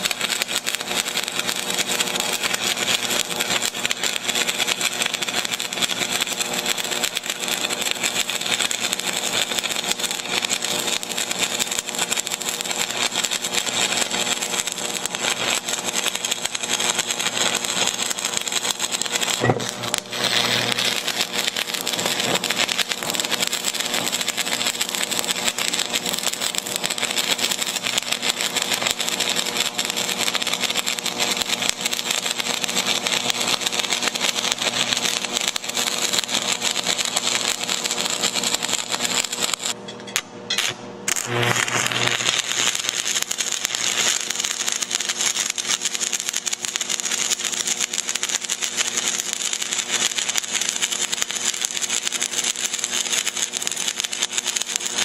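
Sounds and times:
sharp crack of welding arc: 0.0 - 55.0
welding arc crackling: 0.0 - 55.0.

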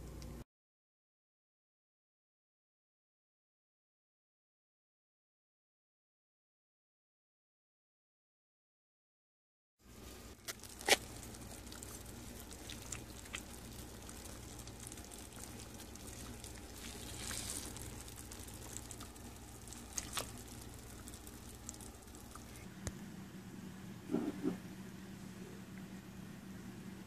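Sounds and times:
low steady hum: 0.0 - 0.4, 9.8 - 27.0.

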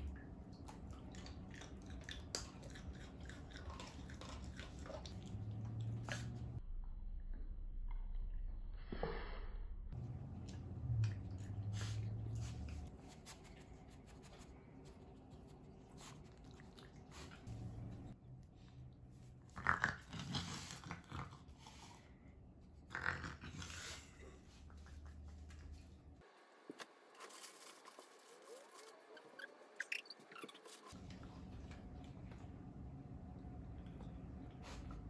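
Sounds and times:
raccoon wet chewing: 0.0 - 6.6, 10.1 - 22.2, 30.7 - 35.0
low hum: 2.3 - 19.5, 30.9 - 35.0.

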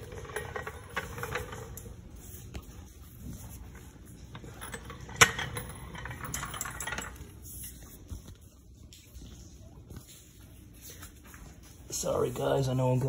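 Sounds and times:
floor jack rolling on garage floor: 0.0 - 7.8.

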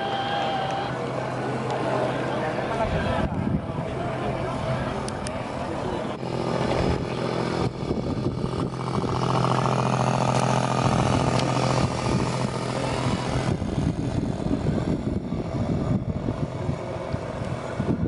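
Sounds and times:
small motor buzzing: 6.2 - 17.8.

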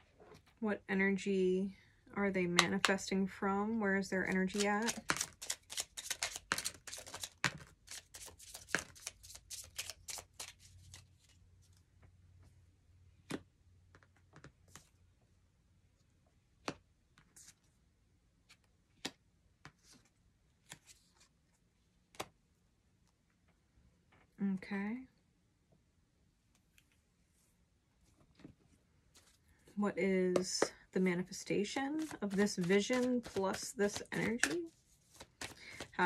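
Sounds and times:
cards being shuffled: 4.5 - 11.4, 18.5 - 21.3, 29.1 - 29.4, 31.8 - 36.0.

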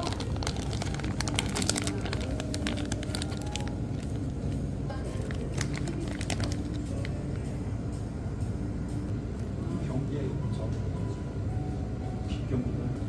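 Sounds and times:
plastic wrapper crinkling: 0.0 - 4.4, 5.1 - 7.1.

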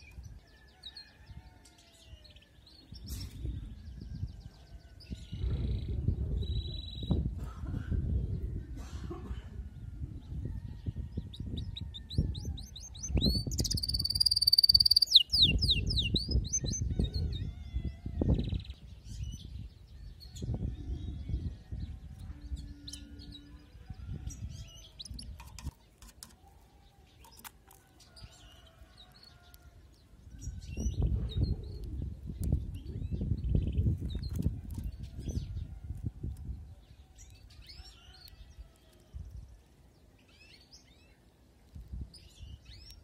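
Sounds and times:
wind rumble on microphone: 0.0 - 25.8, 28.0 - 40.0, 41.0 - 43.0
canary singing trills: 11.2 - 19.5, 22.5 - 35.7.

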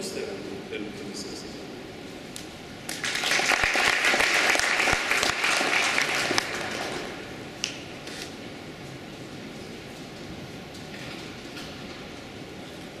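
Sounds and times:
audience applauding: 2.9 - 7.3.

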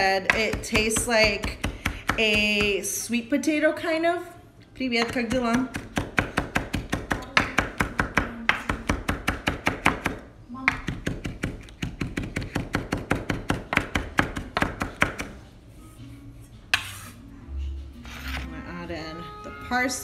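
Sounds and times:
knife chopping on wooden board: 5.0 - 15.4.

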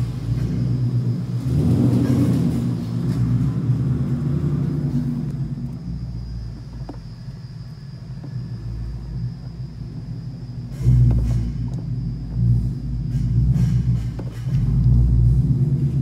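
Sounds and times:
car engine and road rumble: 0.0 - 16.0.

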